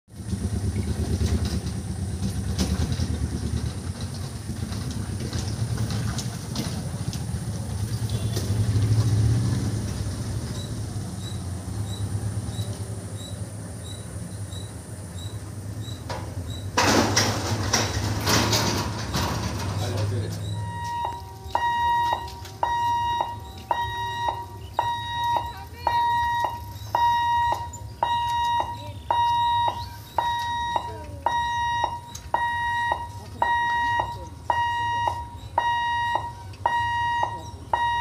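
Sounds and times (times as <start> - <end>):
road vehicle engines humming: 0.1 - 38.0
high warning beeps: 20.4 - 38.0.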